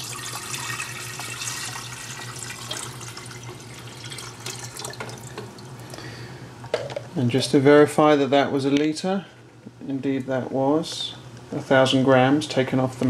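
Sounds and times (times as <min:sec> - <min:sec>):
water pouring into metal kettle: 0:00.0 - 0:05.4.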